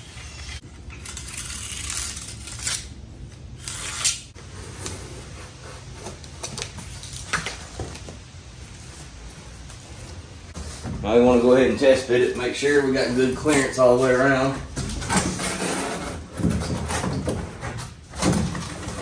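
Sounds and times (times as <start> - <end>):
knife scraping along cardboard: 3.6 - 6.4.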